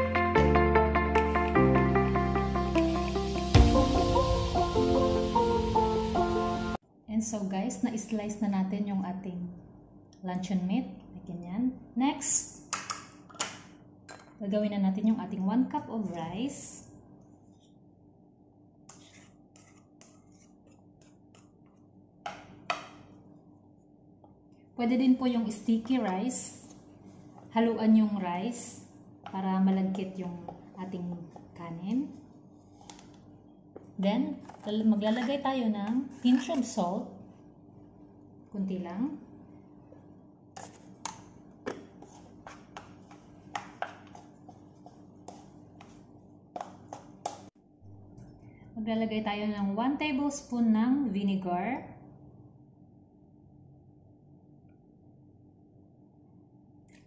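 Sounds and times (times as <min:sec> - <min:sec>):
faint steady hum: 0:06.8 - 0:57.0
utensil scraping ceramic bowl: 0:18.9 - 0:21.4, 0:40.6 - 0:46.0.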